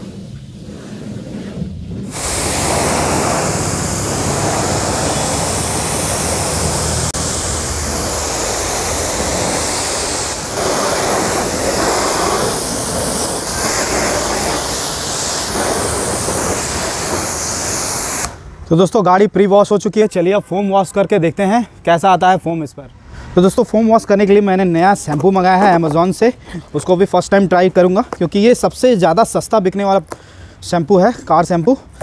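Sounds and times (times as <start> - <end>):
pressure washer spray hissing: 0.0 - 18.5
pump humming: 2.1 - 12.2.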